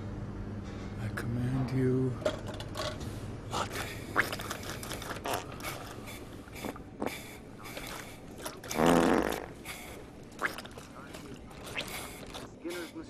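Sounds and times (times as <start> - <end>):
vending machine clicks and whirring: 0.0 - 8.9
loud buzzing hum: 5.2 - 10.8.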